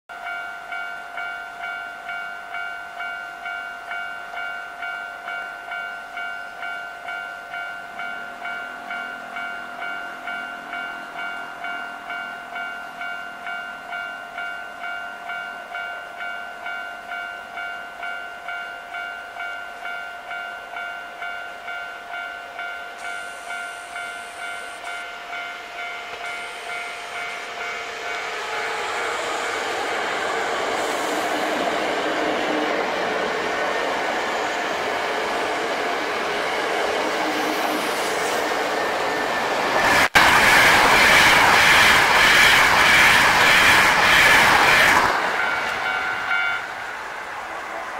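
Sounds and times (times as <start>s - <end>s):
electric train running: 21.7s - 47.9s.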